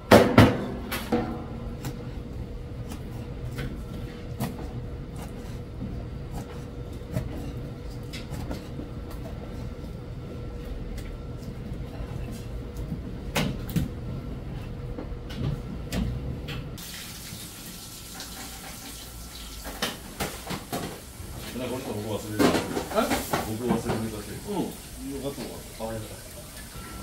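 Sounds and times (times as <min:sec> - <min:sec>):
kitchen hum: 0:00.0 - 0:27.0
tap water running: 0:16.8 - 0:27.0.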